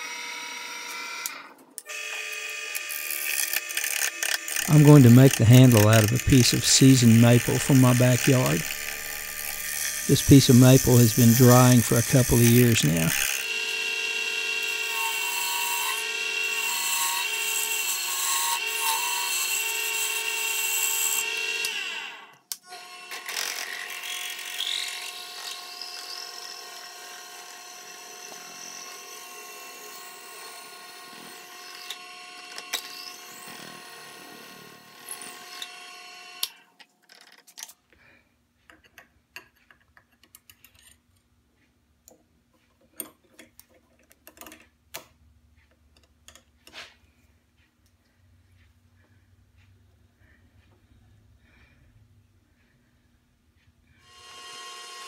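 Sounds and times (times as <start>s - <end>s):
drill bit boring into wood: 0.0s - 36.6s, 54.0s - 55.0s
wood lathe turning: 0.0s - 37.4s, 54.0s - 55.0s.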